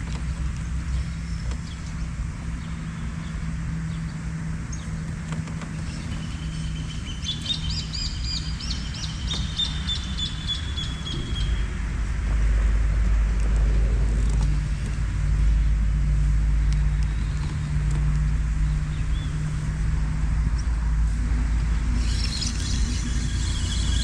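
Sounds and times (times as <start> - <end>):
low hum: 0.0 - 24.0
songbird chirping: 5.7 - 11.7.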